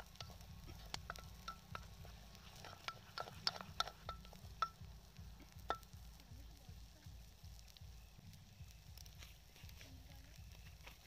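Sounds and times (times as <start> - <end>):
wooden spatula knocking metal pot: 0.0 - 6.1.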